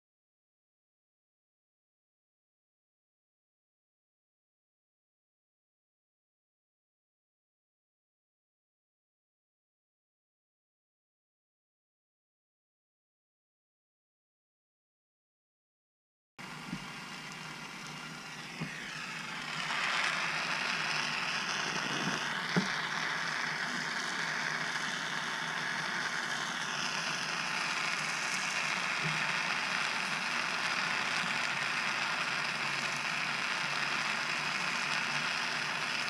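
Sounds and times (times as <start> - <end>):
gas torch flame hissing: 16.4 - 36.0.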